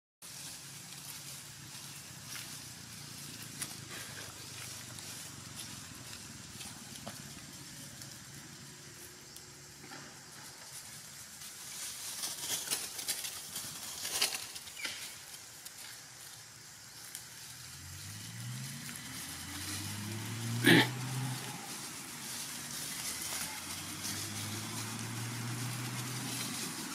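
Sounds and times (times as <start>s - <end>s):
dry leaves rustling and crackling: 0.2s - 26.9s
vehicle engine hum: 0.2s - 26.9s.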